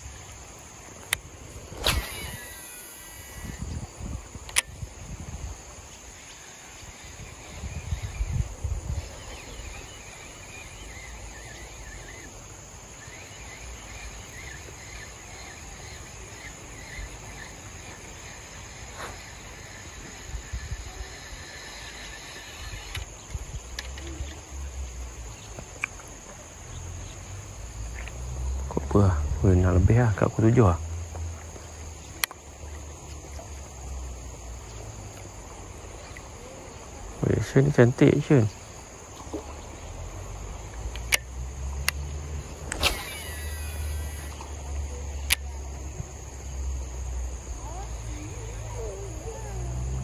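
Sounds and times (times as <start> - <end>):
insects droning: 0.0 - 50.0
faint chirps: 6.2 - 27.4, 42.8 - 46.4
sharp click: 42.7 - 43.5.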